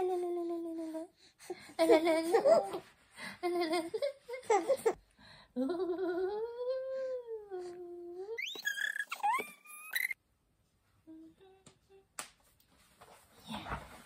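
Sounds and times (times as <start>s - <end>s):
baby squealing: 8.4s - 10.2s.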